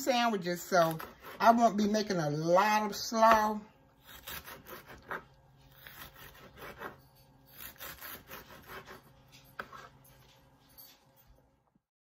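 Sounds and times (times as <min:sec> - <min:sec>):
knife slicing cabbage: 0:00.6 - 0:01.8, 0:03.9 - 0:10.0.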